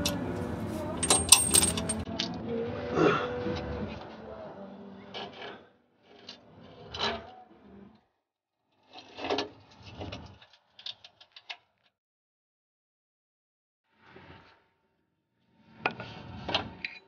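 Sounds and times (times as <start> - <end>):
metal clanks and scrapes: 0.0 - 2.0.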